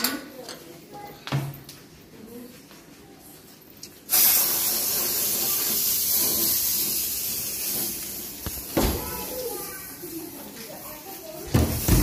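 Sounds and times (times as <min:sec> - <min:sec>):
aerosol spray can hissing: 0:04.1 - 0:08.8.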